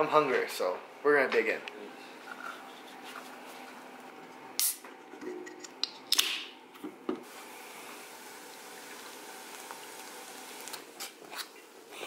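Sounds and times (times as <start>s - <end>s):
can popping open: 6.1s - 6.5s.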